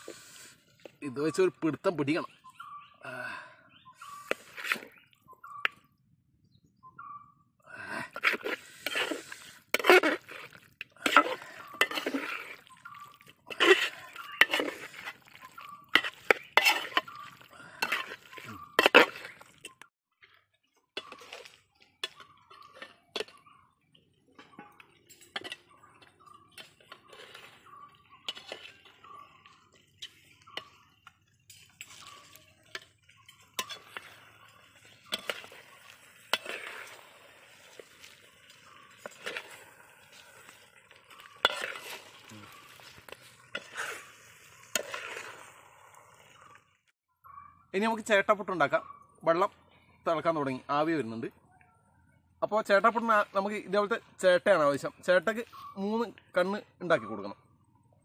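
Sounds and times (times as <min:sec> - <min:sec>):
steel ladle scraping metal pot: 0:04.0 - 0:05.0, 0:08.1 - 0:19.8, 0:21.0 - 0:23.4, 0:24.5 - 0:45.6.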